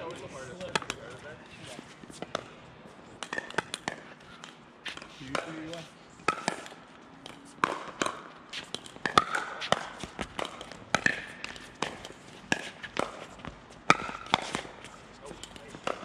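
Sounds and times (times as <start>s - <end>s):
paddles striking plastic ball: 8.8s - 13.2s.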